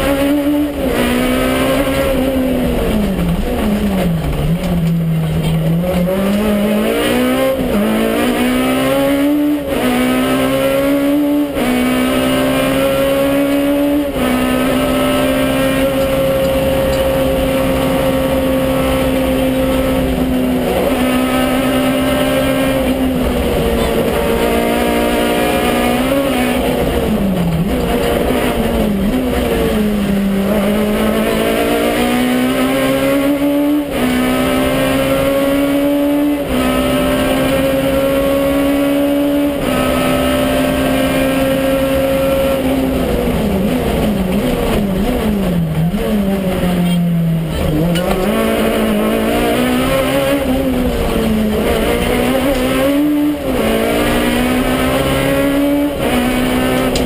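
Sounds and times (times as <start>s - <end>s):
car engine revving hard: 0.0s - 57.0s.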